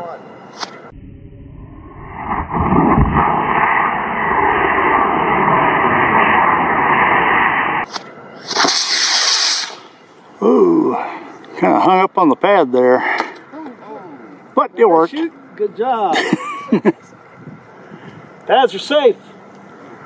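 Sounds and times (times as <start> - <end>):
rocket motor rushing exhaust: 0.5 - 10.1.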